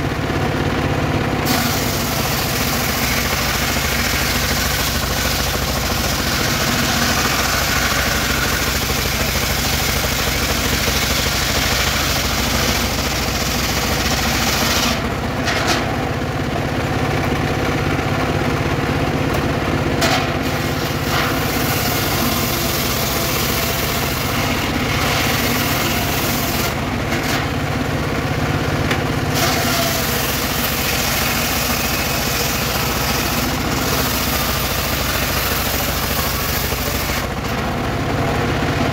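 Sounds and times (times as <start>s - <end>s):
engine running under load: 0.0s - 38.9s
circular saw ripping a log: 1.4s - 15.9s, 20.1s - 27.6s, 29.2s - 37.7s.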